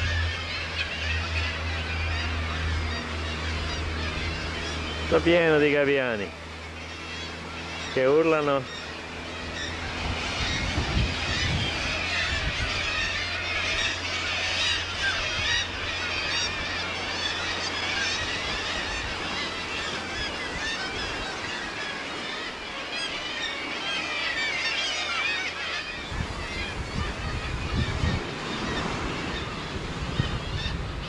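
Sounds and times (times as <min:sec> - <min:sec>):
low hum: 0:00.0 - 0:24.6
gulls screaming: 0:00.0 - 0:31.0.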